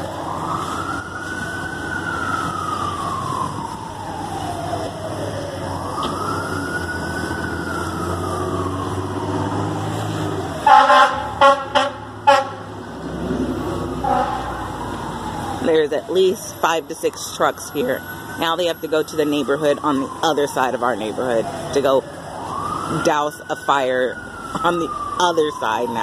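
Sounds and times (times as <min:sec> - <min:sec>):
fire truck siren wailing: 0:00.0 - 0:26.0
low engine rumble: 0:00.0 - 0:26.0
short loud horn blasts: 0:10.7 - 0:12.6, 0:14.0 - 0:14.5.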